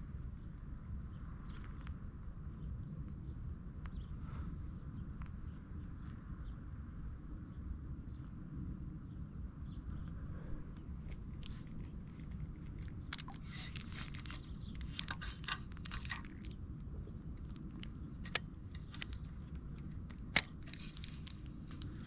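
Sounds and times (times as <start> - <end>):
low steady rumble: 0.0 - 22.0
small clicks: 11.4 - 22.0
fishing reel whirring: 13.0 - 16.5.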